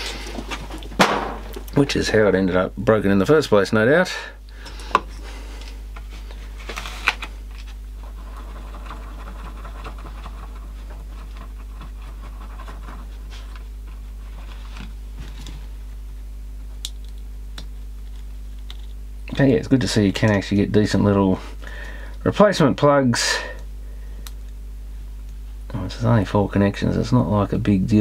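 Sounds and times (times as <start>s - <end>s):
low electrical hum: 0.0s - 28.0s
tool scratching on card: 8.0s - 14.5s.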